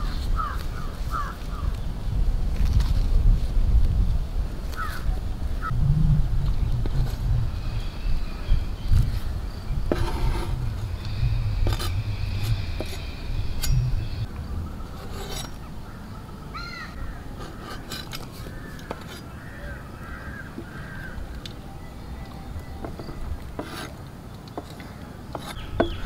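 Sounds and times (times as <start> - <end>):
low rumble: 5.2 - 15.9
birds calling: 7.4 - 26.0
cleaver scraping on wooden board: 9.9 - 14.2, 14.9 - 15.6, 17.4 - 19.3, 22.8 - 26.0.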